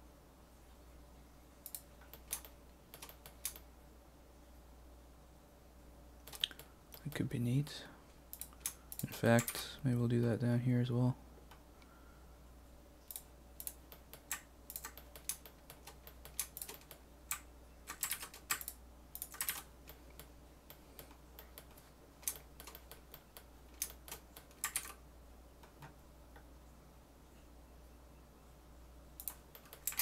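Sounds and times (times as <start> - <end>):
fan humming: 0.0 - 27.3
computer keyboard clicking: 1.7 - 3.6, 8.3 - 9.6, 13.1 - 25.0, 29.2 - 30.0.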